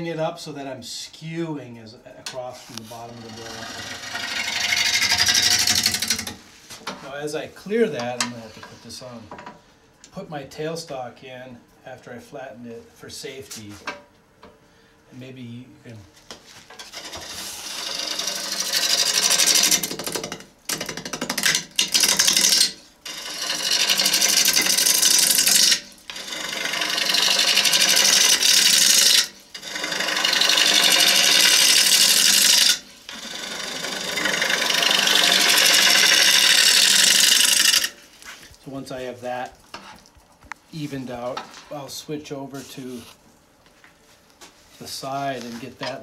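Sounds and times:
lathe gouge hissing cut: 22.0 - 38.0.

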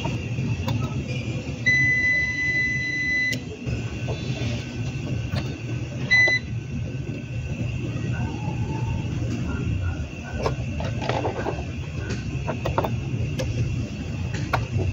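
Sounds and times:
short electronic beep: 1.6 - 3.4, 6.0 - 6.5.

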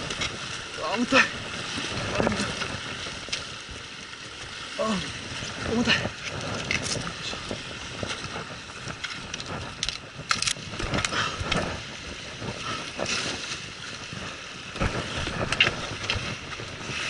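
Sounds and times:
surf washing against rocks: 0.0 - 17.0
wind on microphone: 0.0 - 17.0
knocks and scrapes on rock: 6.2 - 8.4.

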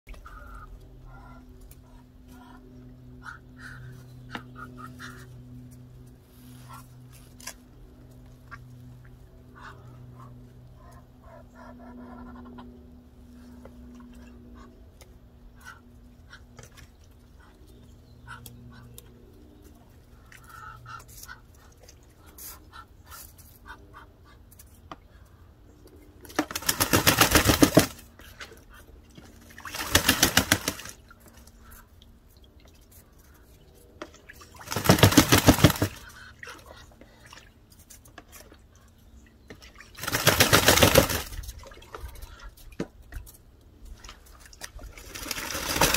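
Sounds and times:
duck wings flapping and splashing: 26.2 - 31.9, 32.7 - 38.6, 39.5 - 45.9
faint water drips: 31.0 - 34.6.

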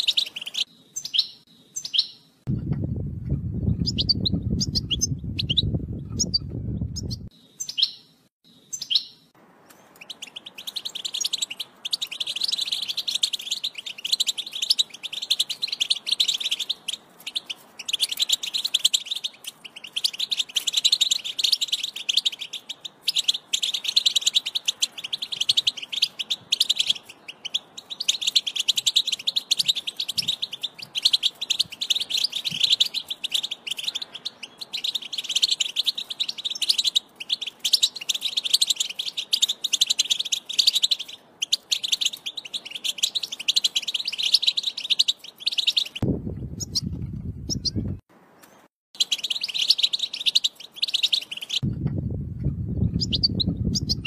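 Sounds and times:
bird chirps: 0.0 - 2.4, 3.4 - 51.7, 52.8 - 54.0
finch twittering song: 0.0 - 54.0
low rumble: 2.5 - 7.3, 46.0 - 48.0, 51.6 - 54.0.

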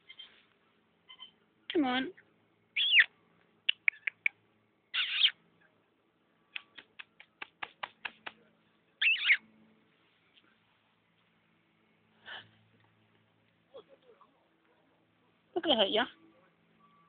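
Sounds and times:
squeaky kissing noises: 2.8 - 3.1, 5.0 - 5.4, 9.0 - 9.4
quick tongue clicks: 3.7 - 4.4, 6.5 - 8.2.

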